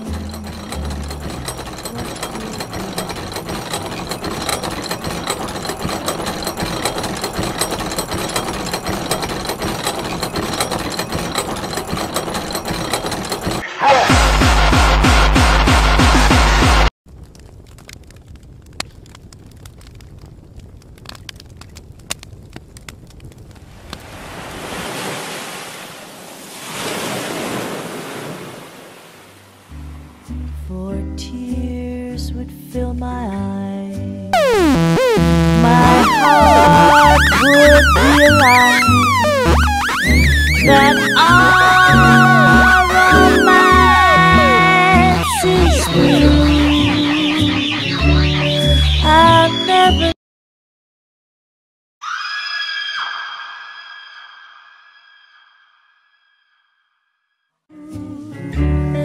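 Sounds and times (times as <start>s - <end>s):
machine-like electronic clattering: 0.0s - 13.6s, 34.4s - 49.2s
waves rushing in: 23.9s - 29.6s
low bass notes: 34.4s - 49.3s.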